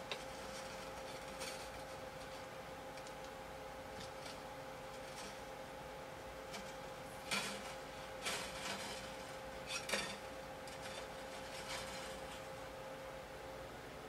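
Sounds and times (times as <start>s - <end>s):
guitar strings scraping and rattling: 0.1s - 2.4s, 4.0s - 5.5s, 6.5s - 12.7s.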